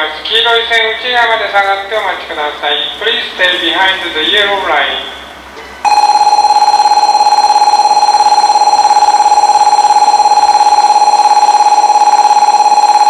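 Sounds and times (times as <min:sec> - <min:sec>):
pulsing electronic warning alarm: 0:05.9 - 0:13.0.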